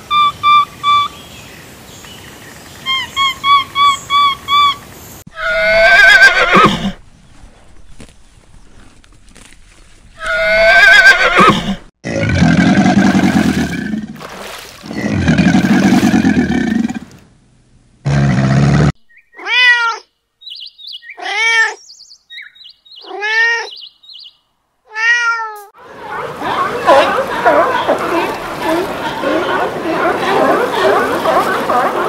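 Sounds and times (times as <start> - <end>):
horse whinnying: 5.4 - 7.0, 10.2 - 11.8
cat meowing: 24.9 - 25.7.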